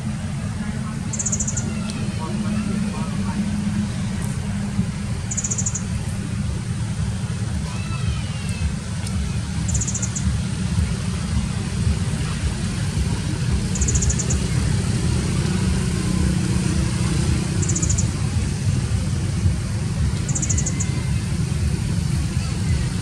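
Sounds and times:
wind buffeting microphone: 0.0 - 23.0
short high rapid trill: 9.7 - 10.3.

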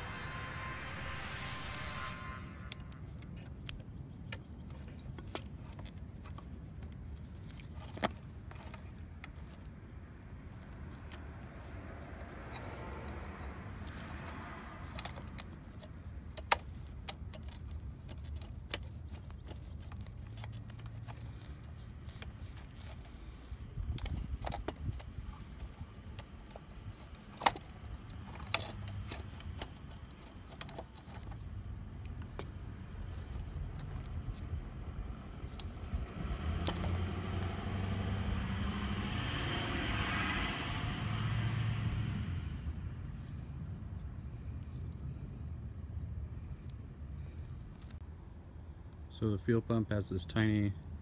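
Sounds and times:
low rumble: 0.0 - 4.0, 32.6 - 44.4.

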